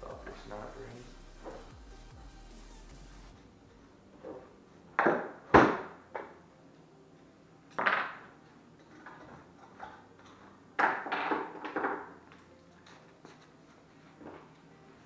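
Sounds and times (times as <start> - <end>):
metal parts clanking on a bench: 7.7 - 12.2.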